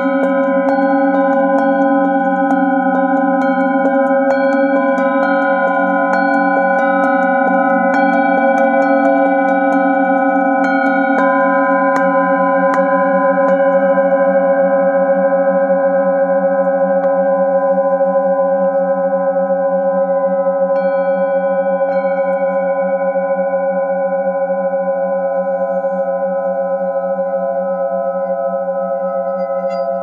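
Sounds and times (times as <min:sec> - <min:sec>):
singing bowls ringing: 0:00.0 - 0:30.0.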